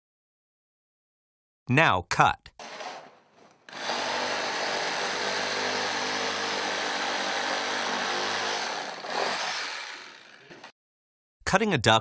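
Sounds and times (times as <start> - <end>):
reciprocating saw cutting plastic: 2.6 - 10.7.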